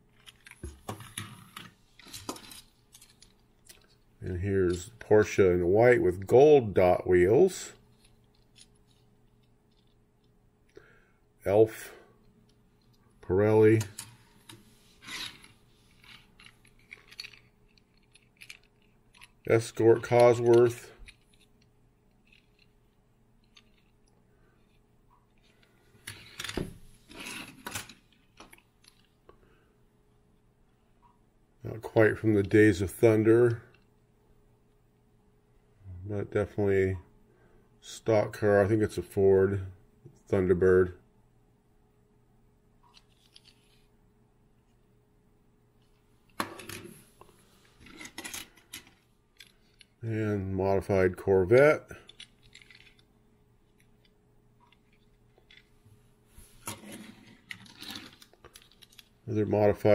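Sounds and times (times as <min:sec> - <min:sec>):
toy cars rustling clatter: 0:15.0 - 0:21.5, 0:23.4 - 0:23.9, 0:47.8 - 0:50.0, 0:52.0 - 0:53.1, 0:56.6 - 0:59.2.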